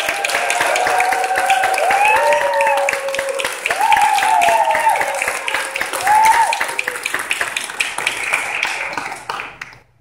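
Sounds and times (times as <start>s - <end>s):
voices cheering: 0.0s - 7.2s
audience applauding: 0.0s - 10.0s.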